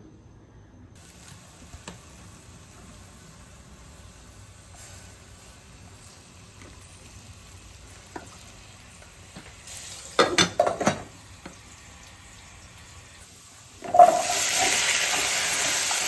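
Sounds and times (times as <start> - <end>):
glass lids clattering on saucepans: 10.2 - 11.1, 13.8 - 14.5.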